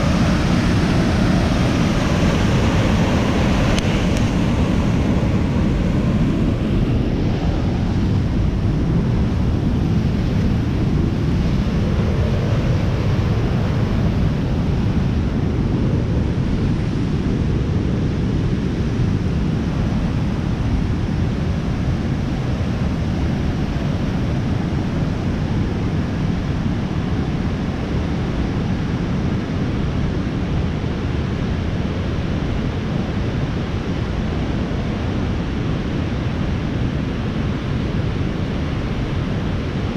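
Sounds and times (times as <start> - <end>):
waterfall and creek rushing: 0.0 - 8.0.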